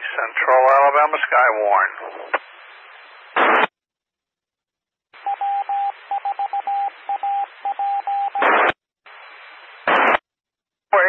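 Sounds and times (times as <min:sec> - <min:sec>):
radio hiss: 0:00.0 - 0:03.7, 0:08.3 - 0:10.2
radio static burst: 0:00.0 - 0:03.7, 0:08.3 - 0:10.2
morse code beeping tone: 0:05.2 - 0:08.4.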